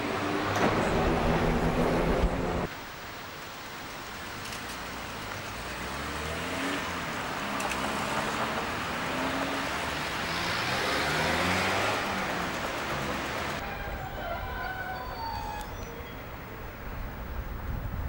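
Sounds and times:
car passing: 0.0s - 2.7s, 5.5s - 13.9s
tram rumbling past: 0.0s - 2.7s, 8.0s - 17.1s.

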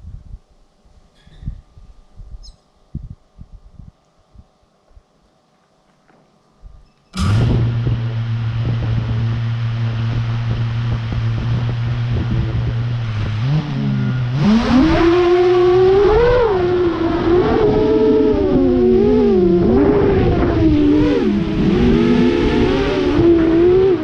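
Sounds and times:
drone motors whining: 6.7s - 24.0s.

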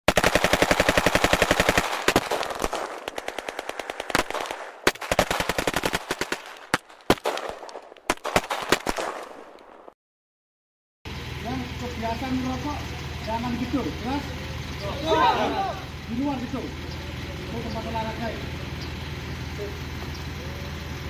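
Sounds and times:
automatic gunfire: 0.1s - 9.9s.

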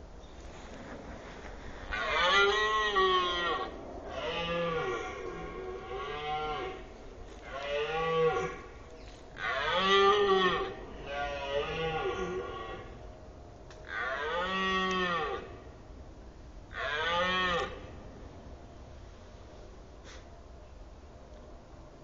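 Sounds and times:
red deer stag roaring: 1.8s - 13.0s, 13.8s - 15.7s, 16.7s - 18.0s.

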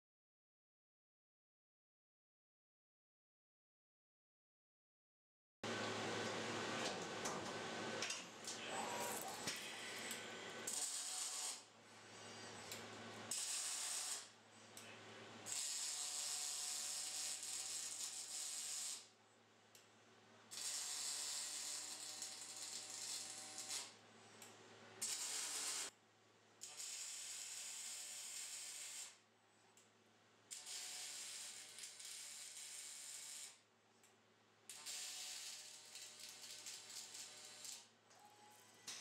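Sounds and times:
low electrical hum: 5.7s - 10.8s
welding arc crackling and hissing: 9.2s - 11.7s, 13.3s - 14.3s, 15.5s - 19.1s, 20.6s - 23.9s, 26.7s - 29.2s, 30.6s - 33.6s, 34.8s - 37.9s.

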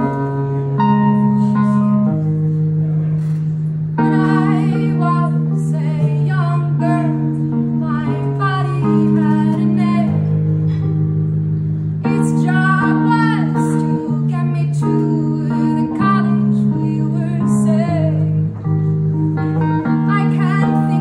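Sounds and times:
electric piano chords: 0.0s - 21.0s
woman singing: 4.0s - 10.3s, 12.1s - 18.5s, 20.0s - 21.0s.

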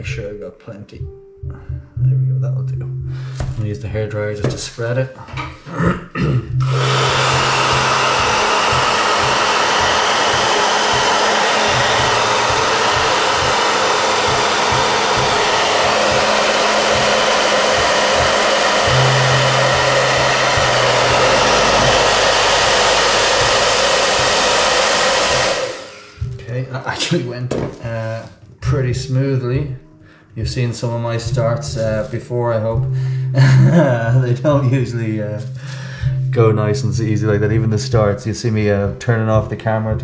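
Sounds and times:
hair dryer blowing: 6.6s - 26.4s.

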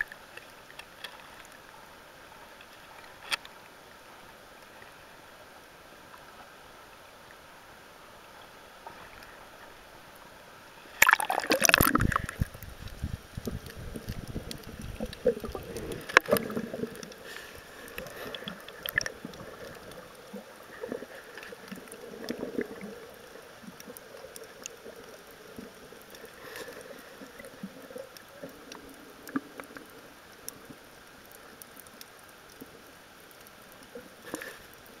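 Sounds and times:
small clicks and crackles: 0.0s - 5.4s, 8.2s - 10.3s, 10.9s - 35.0s
muffled underwater water movement: 0.0s - 35.0s
water sloshing: 11.0s - 24.0s.

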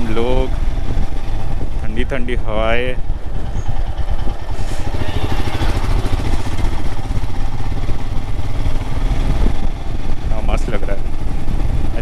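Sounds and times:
motorcycle engine running: 0.0s - 12.0s
wind rumble on microphone: 5.8s - 12.0s.

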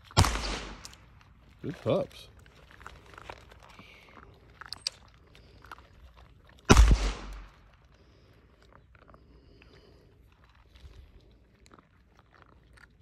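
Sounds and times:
gunshot: 0.0s - 1.0s, 6.7s - 7.6s
puppies chewing from metal pans: 1.0s - 6.7s, 7.5s - 13.0s.

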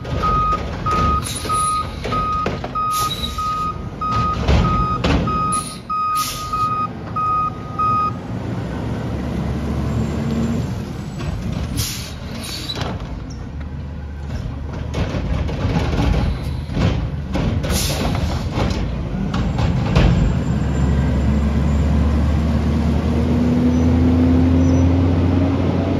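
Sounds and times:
reversing beeper: 0.2s - 8.2s
air brake hisses: 5.6s - 6.6s, 11.8s - 12.8s.

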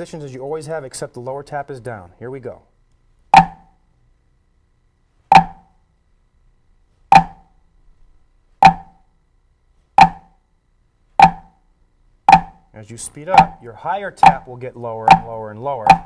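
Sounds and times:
drumsticks on practice pad: 3.4s - 3.7s, 5.3s - 5.7s, 7.1s - 7.5s, 8.6s - 9.0s, 10.0s - 10.4s, 11.2s - 11.6s, 12.3s - 12.7s, 13.3s - 13.6s, 14.2s - 16.0s.

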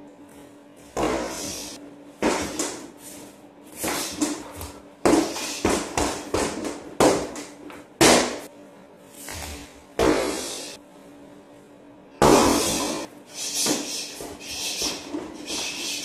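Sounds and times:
punches thudding on punching bag: 2.2s - 2.8s, 3.8s - 8.5s, 10.0s - 10.6s, 12.2s - 13.0s.

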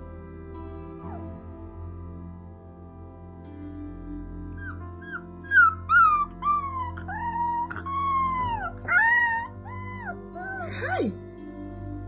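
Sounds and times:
soft background music: 0.0s - 12.0s
husky puppy howling: 4.6s - 11.1s.

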